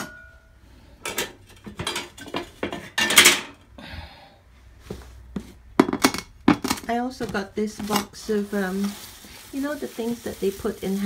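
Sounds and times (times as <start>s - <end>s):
objects knocking and clattering: 1.0s - 3.7s, 5.4s - 8.1s
scraping rustle: 7.6s - 11.0s.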